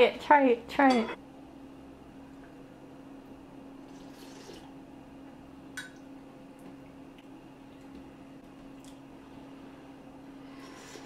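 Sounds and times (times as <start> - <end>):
low room hum: 0.0 - 11.0
slurping soup from a spoon: 10.5 - 11.0.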